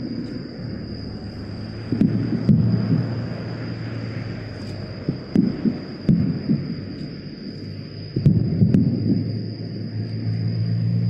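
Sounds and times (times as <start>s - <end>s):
firework booms with echoes: 1.9s - 3.3s, 5.0s - 6.9s, 8.2s - 9.3s.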